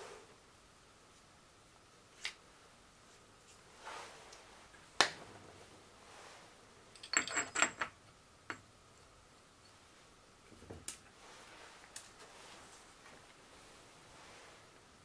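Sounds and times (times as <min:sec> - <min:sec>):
metal parts clinking: 0:07.0 - 0:08.0.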